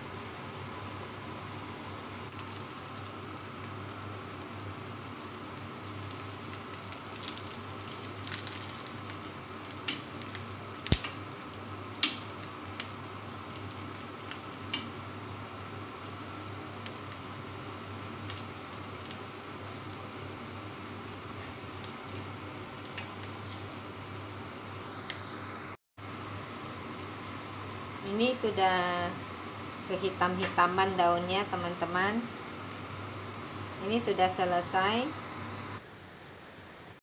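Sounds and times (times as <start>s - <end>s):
food sizzling on grill pan: 0.1s - 25.6s.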